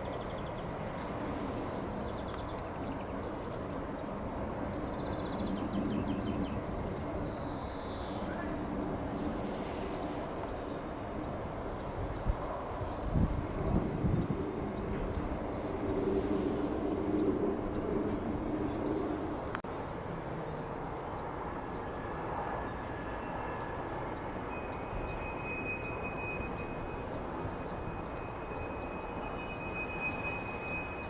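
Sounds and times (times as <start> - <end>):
bird chirps: 24.5 - 31.0.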